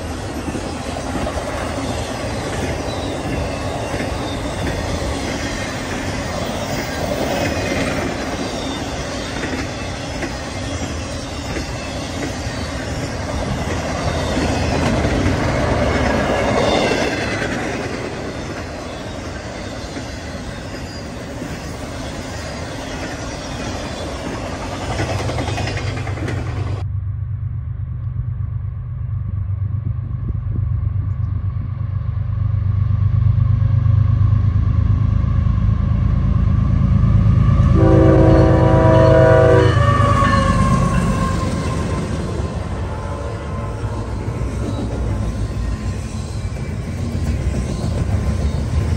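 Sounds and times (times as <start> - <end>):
freight train wheels clattering: 0.0 - 26.8, 39.8 - 48.9
diesel locomotive drone: 0.0 - 48.9
train horn: 37.4 - 44.4.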